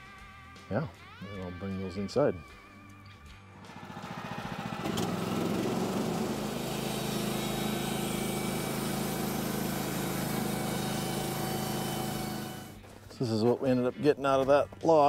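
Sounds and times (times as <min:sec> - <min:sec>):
band blade cutting boards: 0:03.6 - 0:12.8
sawmill engine running: 0:03.6 - 0:12.8.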